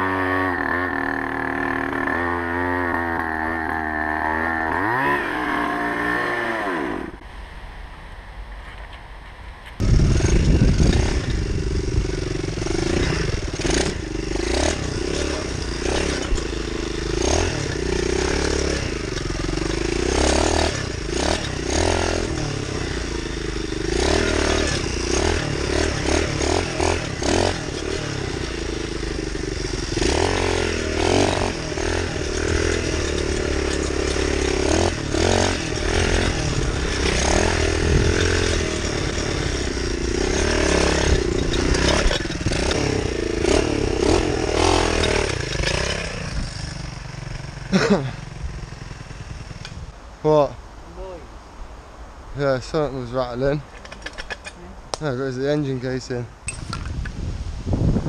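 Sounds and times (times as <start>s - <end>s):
small motorbike engine revving: 0.0s - 7.2s, 9.8s - 49.9s
bike clattering over bumps: 9.8s - 48.1s.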